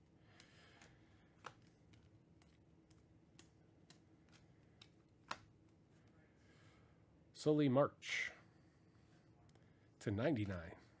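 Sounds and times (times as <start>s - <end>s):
trading cards clicking and tapping: 0.3s - 5.8s.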